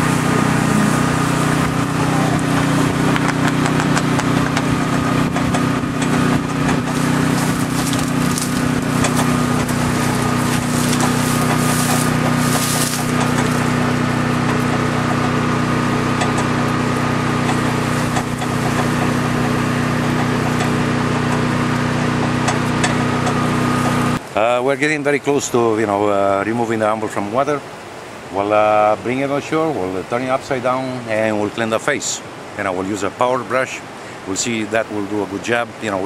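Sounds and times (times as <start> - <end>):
truck engine idling: 0.0 - 24.2
hot steel crackling and hissing in water: 5.5 - 14.6.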